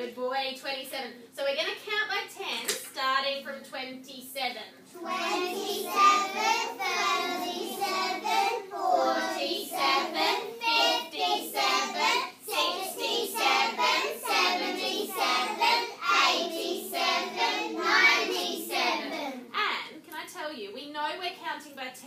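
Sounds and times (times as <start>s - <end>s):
children chanting in unison: 5.0s - 19.4s.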